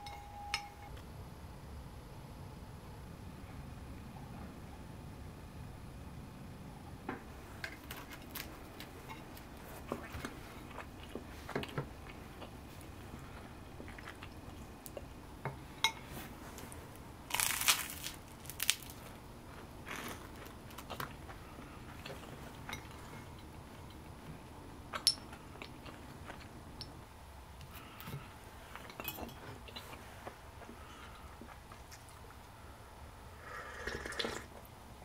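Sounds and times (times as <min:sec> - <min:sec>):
crinkly packaging rustle: 0:16.5 - 0:19.2.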